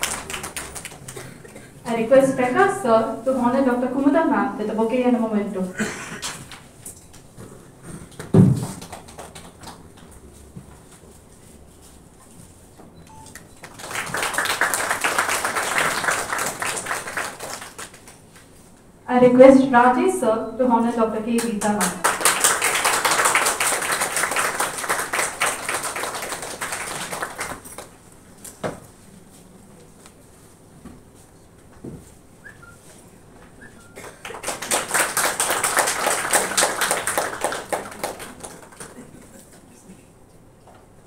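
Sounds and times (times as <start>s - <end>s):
audience applause: 0.0s - 1.7s, 8.6s - 10.2s, 13.6s - 18.2s, 21.8s - 28.0s, 33.8s - 39.4s
knock: 8.2s - 8.8s.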